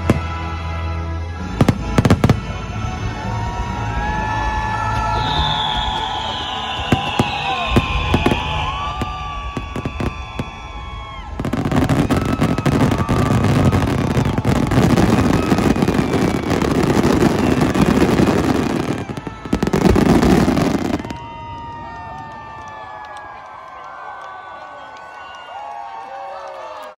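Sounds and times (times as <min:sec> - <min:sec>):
fireworks bursting with crackle: 0:05.0 - 0:23.2.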